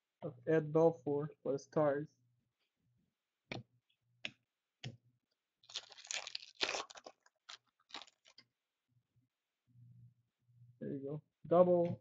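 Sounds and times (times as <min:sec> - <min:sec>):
cards rustling and crinkling: 0:05.6 - 0:08.4.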